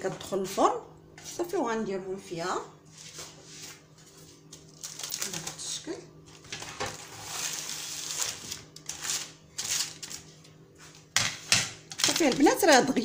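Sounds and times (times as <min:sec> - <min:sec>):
baking paper rustling and crinkling: 0:02.8 - 0:13.0.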